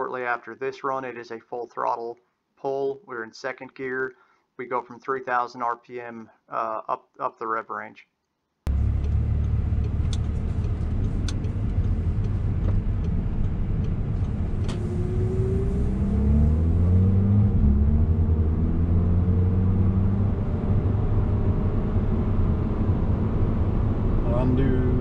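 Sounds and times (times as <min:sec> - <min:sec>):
car engine accelerating: 0:08.7 - 0:25.0
road noise inside car: 0:08.7 - 0:25.0.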